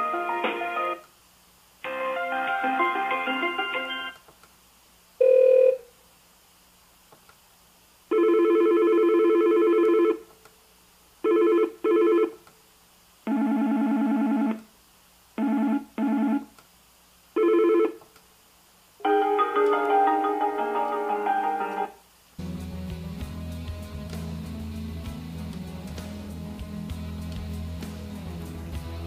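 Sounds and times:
melodic ring tone: 1.9 - 4.2, 19.0 - 21.9
electronic trilling phone rings: 8.1 - 10.2, 17.4 - 18.0.

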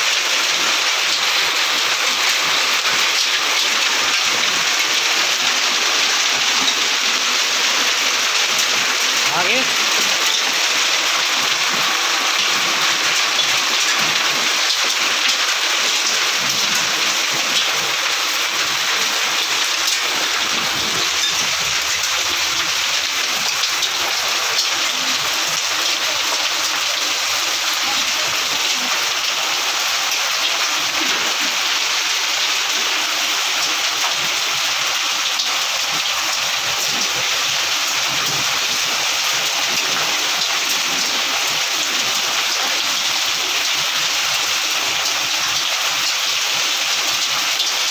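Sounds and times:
heavy rain and hail on bricks: 0.0 - 47.9.

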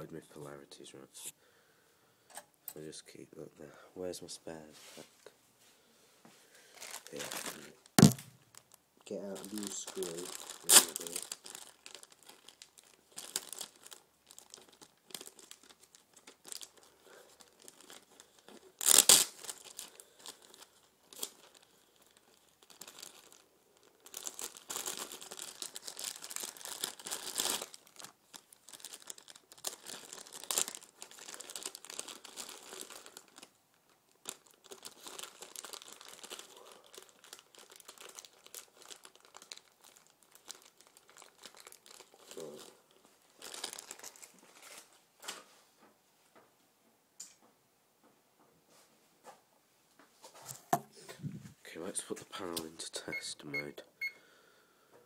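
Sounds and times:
packaging rustling and crinkling: 6.7 - 45.5
sharp knock: 8.0 - 8.3.

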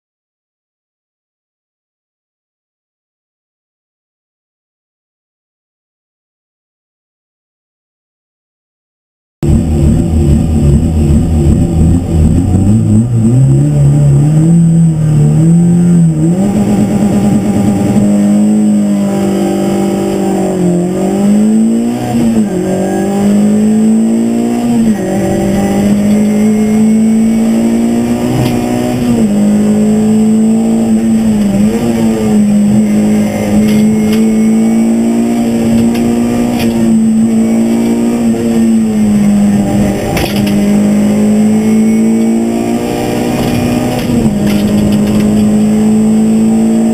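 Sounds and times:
rally car engine revving: 9.4 - 46.9.

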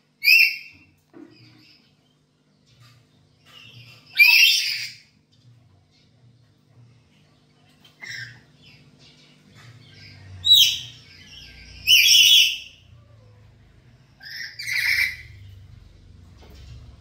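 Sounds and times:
parrots squawking: 0.2 - 0.8, 3.6 - 5.1, 8.0 - 8.5, 9.9 - 12.9, 14.2 - 15.6.

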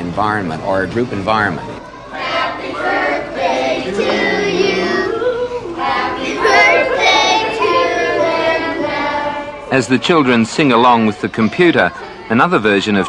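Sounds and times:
children singing together: 2.0 - 9.7.

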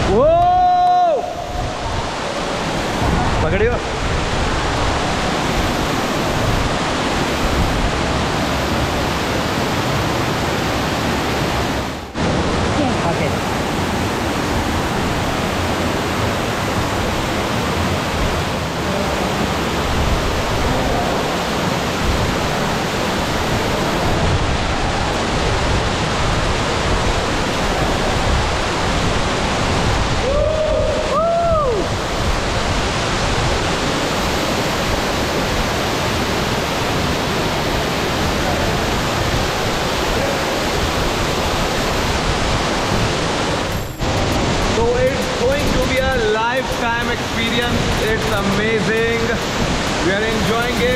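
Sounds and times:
waterfall rushing: 0.0 - 50.9
rising and falling whoop: 30.2 - 32.0.

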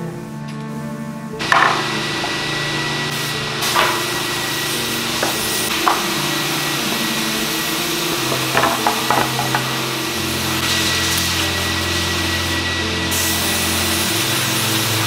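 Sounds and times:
wooden boards knocking on workbench: 1.4 - 2.4, 3.6 - 4.2, 5.1 - 6.2, 8.2 - 9.8
workshop machinery whooshing: 1.4 - 15.0.

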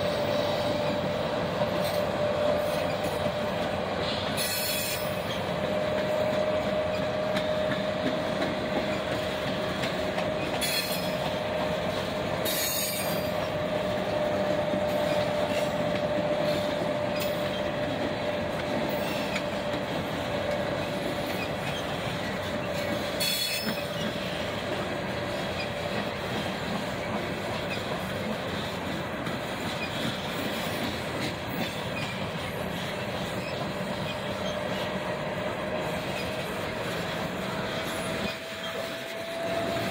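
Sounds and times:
train wheels rolling on rails: 0.0 - 39.9
wheels squealing: 29.6 - 35.2.

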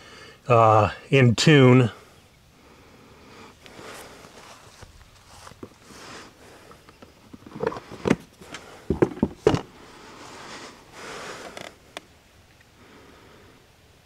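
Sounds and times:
rustling: 3.5 - 12.1
seat clunks and knocks: 8.9 - 9.7.

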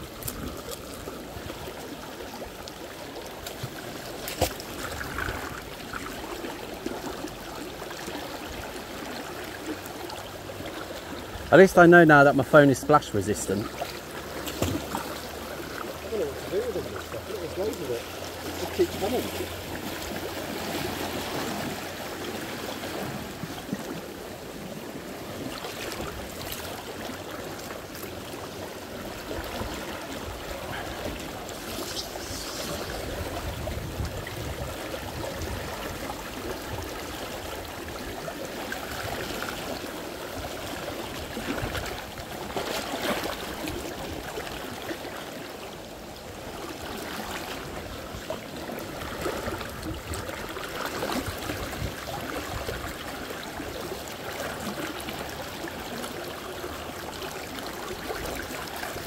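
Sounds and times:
trickling water: 0.0 - 59.0
water splashes: 0.0 - 59.0.

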